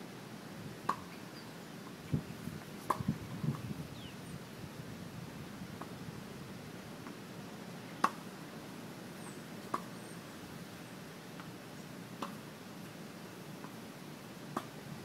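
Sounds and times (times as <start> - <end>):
tennis balls struck by rackets: 14.5 - 14.7.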